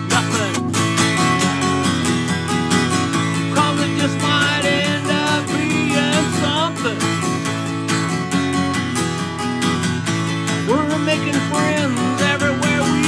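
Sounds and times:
man singing: 0.0 - 0.8, 3.2 - 7.4, 10.6 - 13.0
acoustic guitar strumming: 0.0 - 13.0.

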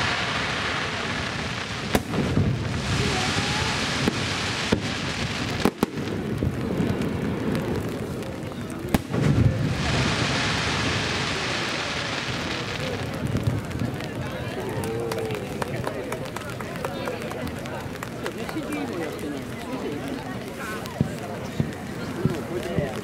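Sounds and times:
firework bangs: 0.0 - 16.7
continuous rushing noise: 0.0 - 23.0.

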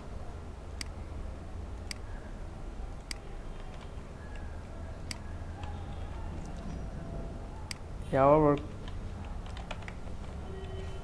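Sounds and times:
computer mouse clicks: 1.8 - 2.1, 3.0 - 6.8, 8.5 - 10.8.

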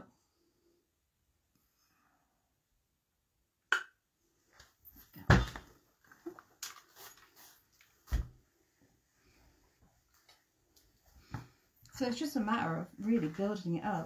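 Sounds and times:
fabric rustling: 4.9 - 11.8.

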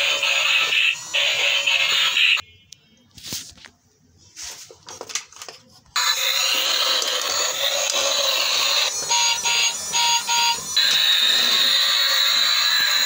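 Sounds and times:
toy electronic music and effects: 0.0 - 2.4, 6.0 - 13.0.

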